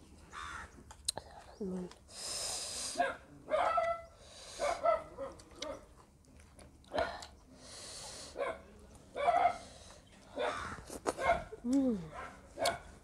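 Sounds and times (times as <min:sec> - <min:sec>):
chewing and wet mouth smacks: 0:05.3 - 0:07.5.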